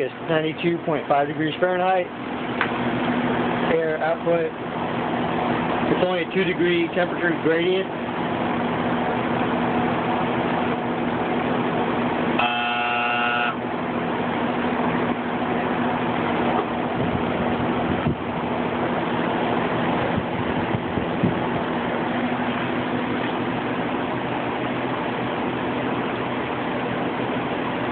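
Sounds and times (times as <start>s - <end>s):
condenser fan running: 0.0s - 27.9s
buzzing horn-like tone: 12.4s - 13.6s.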